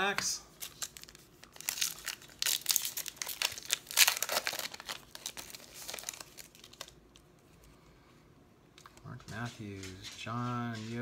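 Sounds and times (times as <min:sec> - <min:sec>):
foil wrapper crinkling: 0:00.6 - 0:07.3.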